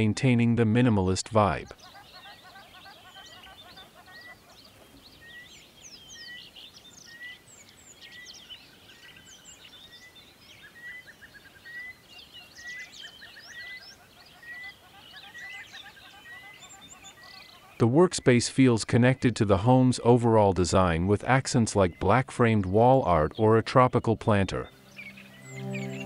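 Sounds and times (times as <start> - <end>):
songbirds chirping and whistling: 0.0 - 26.0
bird trills: 1.8 - 7.4, 8.0 - 17.8, 24.6 - 26.0.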